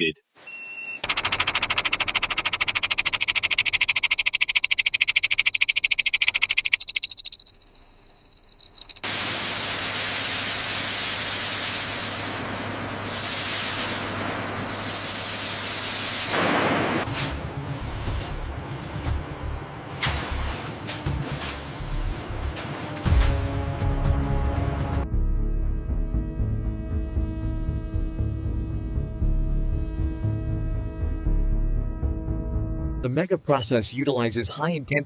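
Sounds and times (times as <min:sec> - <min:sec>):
fast mechanical rattle: 0:01.0 - 0:09.1
steady machine hiss: 0:05.2 - 0:16.4.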